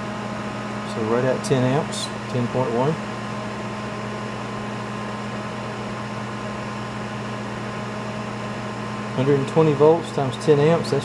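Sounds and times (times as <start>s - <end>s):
cooling fan rushing: 0.0s - 11.0s
microwave oven hum: 0.0s - 11.0s.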